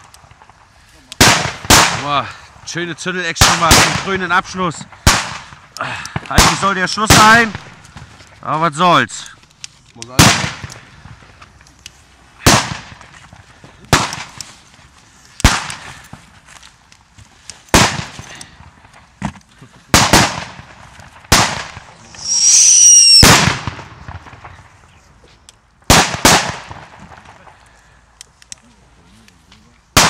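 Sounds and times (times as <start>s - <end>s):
firecrackers banging: 0.0s - 24.9s, 25.7s - 28.2s
shrill whistle: 22.2s - 23.2s.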